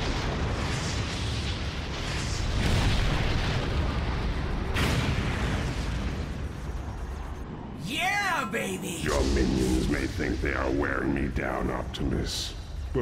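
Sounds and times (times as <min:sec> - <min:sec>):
cartoon explosions with low rumble: 0:00.0 - 0:08.0.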